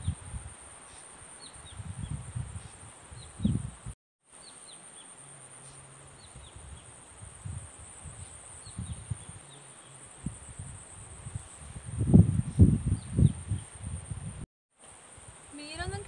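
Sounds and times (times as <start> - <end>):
high insect buzz: 4.4 - 16.0.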